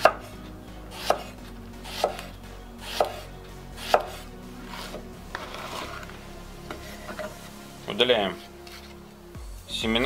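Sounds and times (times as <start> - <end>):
knife slicing vegetable: 0.0 - 6.2, 8.4 - 9.0.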